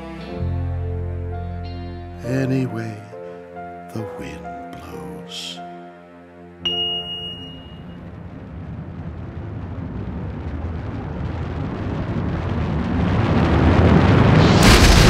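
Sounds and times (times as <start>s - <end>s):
rumbling rushing fireball: 8.0s - 15.0s.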